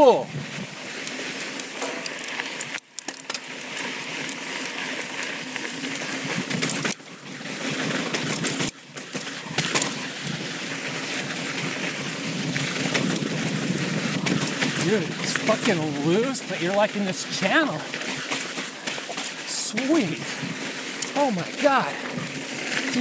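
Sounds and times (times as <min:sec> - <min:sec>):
tyres on dirt trail: 0:00.0 - 0:23.0
bike knocks and clatter: 0:01.5 - 0:16.3, 0:17.2 - 0:21.1.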